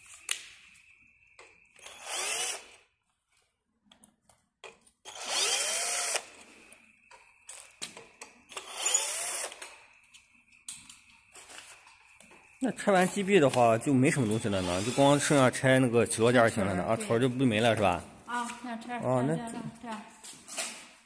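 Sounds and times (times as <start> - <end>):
cordless drill motor whine: 1.7 - 2.9, 5.0 - 6.8, 8.5 - 9.9, 14.2 - 15.6.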